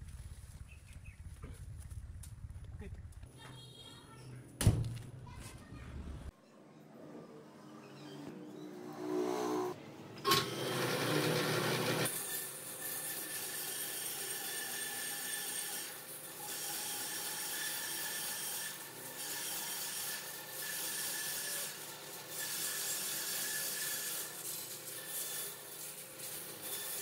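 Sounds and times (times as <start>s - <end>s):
band saw cutting log: 7.4s - 27.0s.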